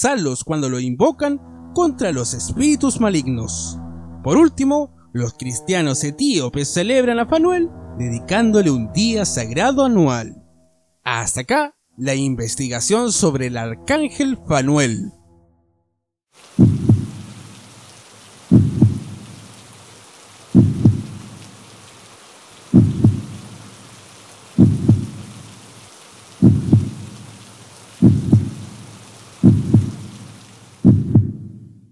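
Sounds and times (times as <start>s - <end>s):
rain-like hiss: 16.3s - 31.9s
heartbeat thumps: 16.6s - 17.2s, 18.5s - 19.1s, 20.6s - 21.1s, 22.8s - 23.4s, 24.6s - 25.2s, 26.4s - 27.1s, 28.0s - 28.7s, 29.4s - 30.1s, 30.8s - 31.5s.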